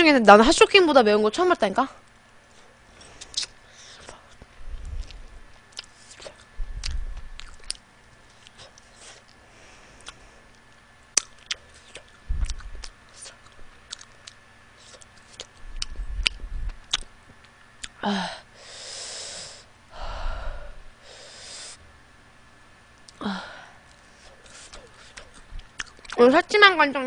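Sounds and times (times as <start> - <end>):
wet mouth clicks chewing: 5.0 - 9.4, 10.0 - 18.0, 24.8 - 26.2
low thumps: 12.2 - 12.9, 15.6 - 16.9.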